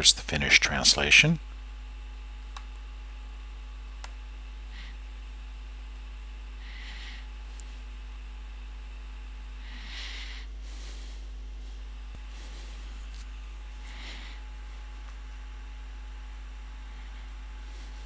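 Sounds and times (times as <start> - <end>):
electrical hum and hiss: 0.0 - 18.0
soft puffs of breath: 9.6 - 14.9.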